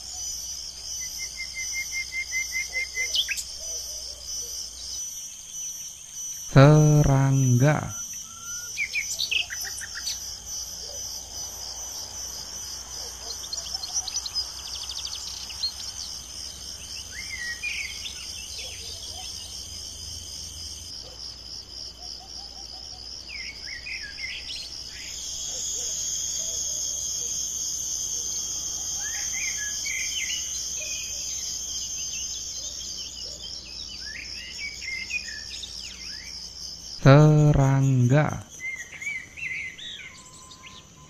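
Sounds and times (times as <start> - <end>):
insects trilling: 0.0 - 41.0
bird chirps: 38.6 - 41.0.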